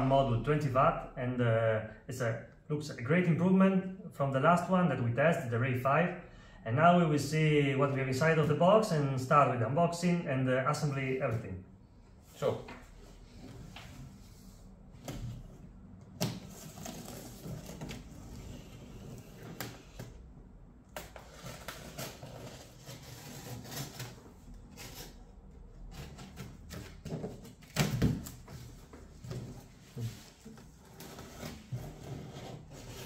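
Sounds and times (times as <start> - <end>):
cardboard flap rustling open: 16.1 - 20.2.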